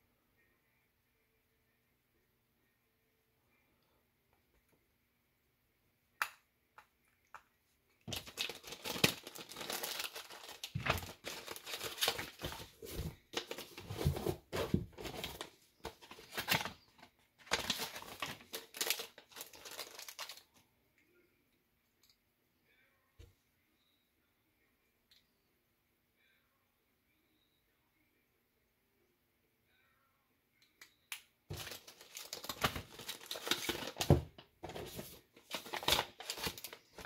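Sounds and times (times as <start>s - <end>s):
plastic bag and paper rustling: 8.1s - 20.4s, 31.5s - 37.0s.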